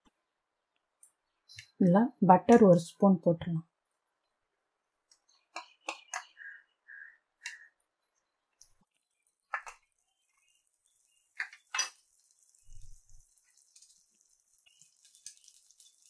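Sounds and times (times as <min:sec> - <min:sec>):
butter sizzling in pan: 0:08.6 - 0:16.0
metal spoon clinking on pan: 0:11.4 - 0:12.2.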